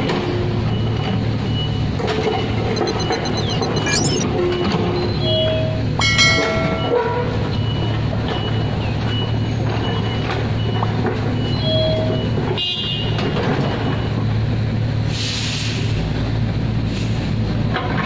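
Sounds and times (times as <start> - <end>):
warning alarm beeping: 2.8 - 4.2.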